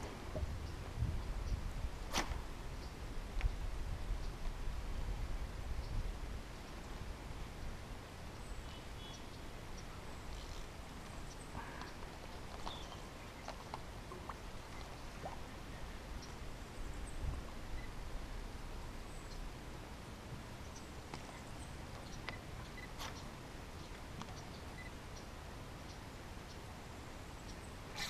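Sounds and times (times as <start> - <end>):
low wind rumble: 0.0 - 27.9
bird chirps: 12.6 - 13.6.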